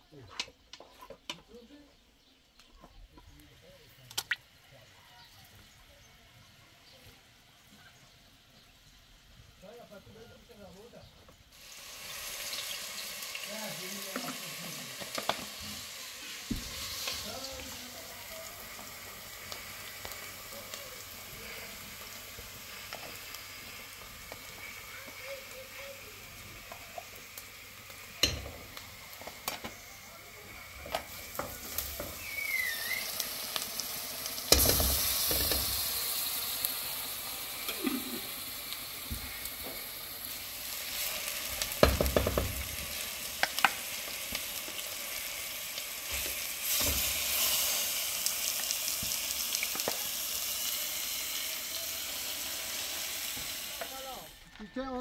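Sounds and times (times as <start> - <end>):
onions sizzling in oil: 4.4 - 55.0
meat dropped into hot pot sizzling: 14.1 - 17.3, 28.1 - 29.8, 30.8 - 36.8, 40.8 - 45.0, 45.7 - 50.1.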